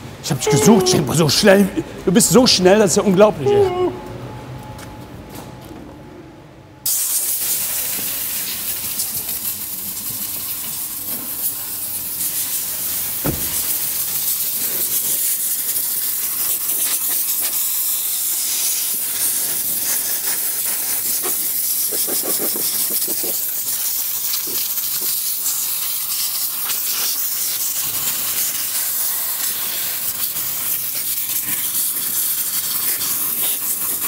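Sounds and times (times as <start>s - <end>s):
compressed air blow gun hissing: 6.9s - 34.0s.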